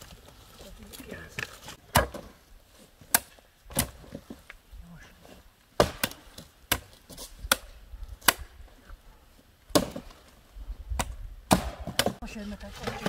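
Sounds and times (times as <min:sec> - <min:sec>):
blade chopping on wood: 0:05.8 - 0:08.5, 0:11.5 - 0:12.2.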